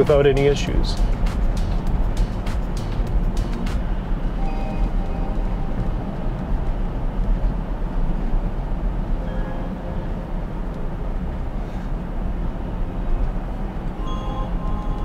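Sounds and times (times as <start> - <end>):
road and tyre rumble in car cabin: 0.0 - 15.0.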